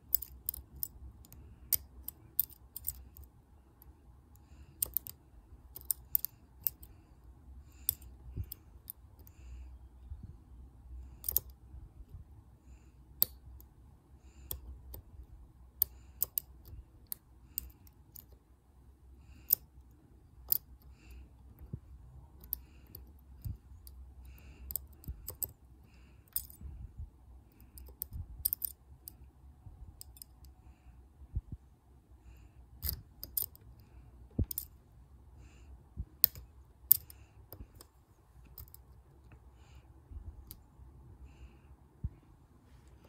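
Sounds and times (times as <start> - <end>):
lock pick metallic clicks: 0.0 - 3.3, 4.8 - 6.9, 11.2 - 11.5, 15.8 - 18.4, 20.4 - 21.1, 26.3 - 26.6, 27.6 - 29.2, 30.0 - 30.5, 32.8 - 33.6, 34.4 - 34.8, 36.2 - 38.8
faint low hum: 0.0 - 43.0.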